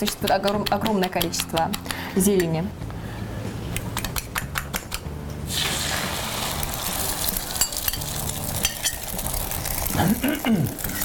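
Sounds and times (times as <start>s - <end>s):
egg sizzling in frying pan: 5.5s - 11.0s.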